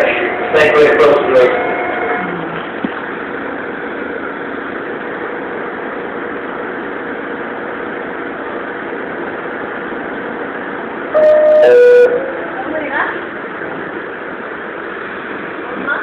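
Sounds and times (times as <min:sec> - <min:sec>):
hum and hiss in subway car: 0:00.0 - 0:16.0
door chime tone: 0:11.2 - 0:12.4.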